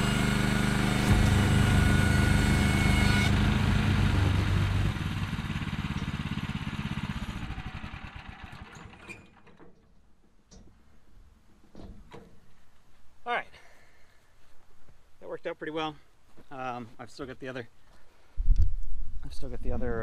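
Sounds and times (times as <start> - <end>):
gasoline engine running: 0.0 - 9.1.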